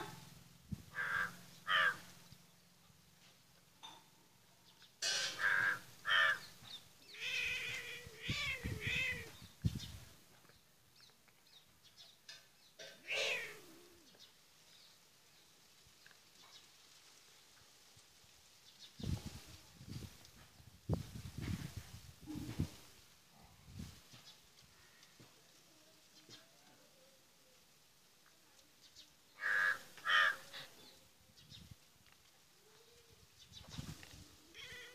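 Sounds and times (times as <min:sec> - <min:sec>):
harsh animal calls: 0:00.9 - 0:02.1, 0:29.4 - 0:30.8
harsh animal cries: 0:29.4 - 0:30.6.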